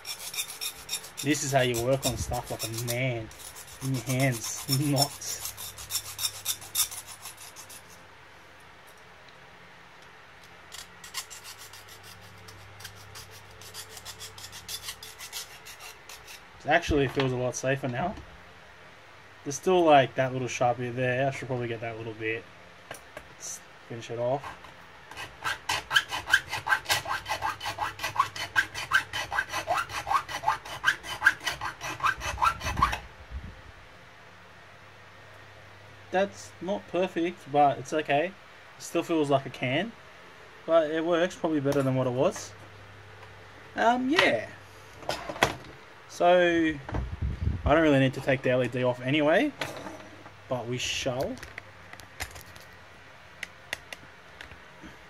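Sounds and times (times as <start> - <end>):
hand file scraping metal: 0.0 - 8.0, 10.7 - 16.5, 24.4 - 33.0.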